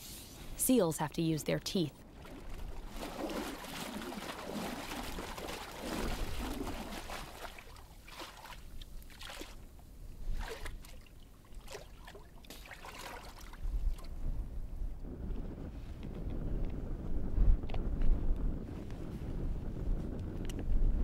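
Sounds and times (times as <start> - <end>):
water sloshing and trickling: 2.0 - 14.2.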